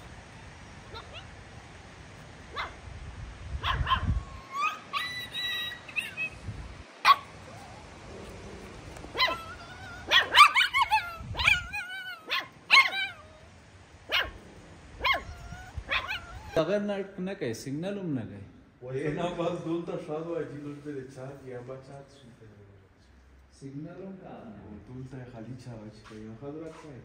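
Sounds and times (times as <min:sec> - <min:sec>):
puppy whining: 0:00.9 - 0:01.4, 0:03.6 - 0:06.5, 0:07.1 - 0:14.4, 0:15.0 - 0:16.7
puppy yapping: 0:00.9 - 0:01.4, 0:02.5 - 0:02.8, 0:03.6 - 0:06.4, 0:07.0 - 0:14.4, 0:15.0 - 0:16.7
puppy yelping: 0:00.9 - 0:01.4, 0:02.5 - 0:02.8, 0:03.6 - 0:14.4, 0:15.0 - 0:16.7.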